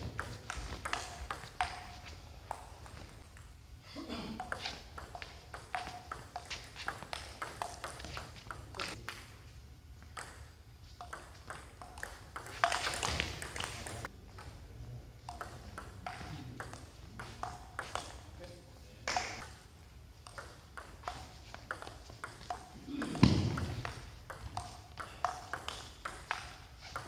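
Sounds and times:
table tennis ball clicking: 0.2s - 2.7s, 4.4s - 9.3s, 10.1s - 14.1s, 15.3s - 18.2s, 20.2s - 27.0s.

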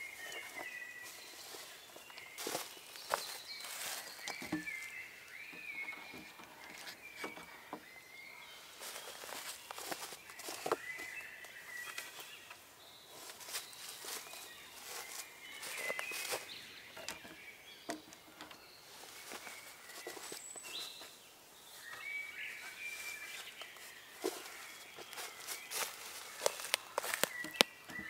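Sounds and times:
small birds chirping: 0.0s - 28.0s
light clicks and crackles: 24.3s - 28.0s.

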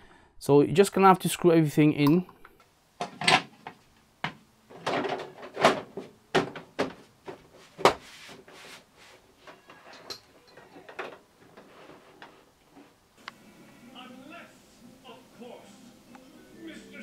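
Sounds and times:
plastic and metal parts knocking: 3.0s - 7.4s.

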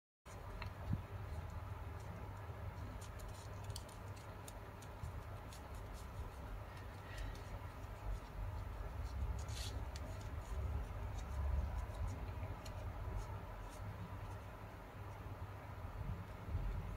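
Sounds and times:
low steady hum: 0.3s - 16.9s
paper rustling: 1.3s - 14.6s
crisp paper clicks: 1.4s - 8.2s.

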